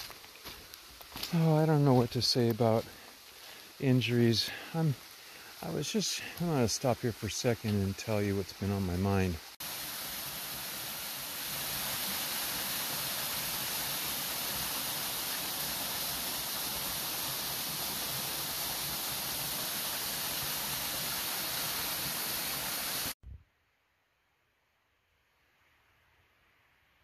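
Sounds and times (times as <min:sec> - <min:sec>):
water rushing over rocks: 0:04.0 - 0:23.1.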